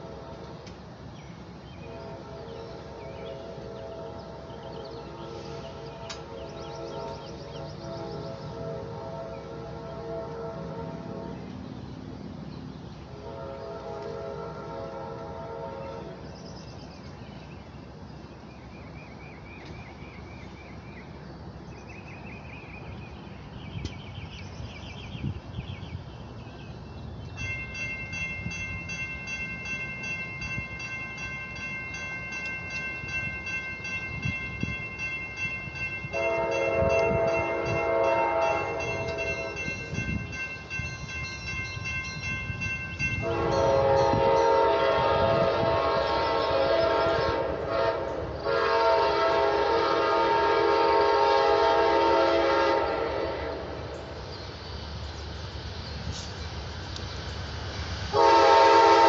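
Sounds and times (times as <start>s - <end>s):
train horn chord blast: 0.0s - 0.7s, 1.8s - 11.6s, 13.2s - 16.2s, 36.1s - 40.3s, 43.0s - 54.0s, 58.1s - 59.0s
train low rumble: 0.0s - 59.0s
birds chirping: 1.1s - 10.2s, 53.8s - 57.8s.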